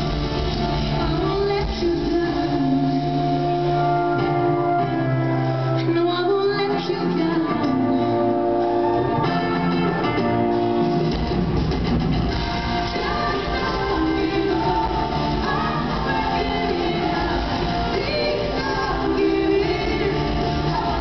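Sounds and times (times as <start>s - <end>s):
pop-rock band playing: 0.0s - 21.0s
woman singing: 0.8s - 5.1s, 5.7s - 10.3s, 12.5s - 21.0s.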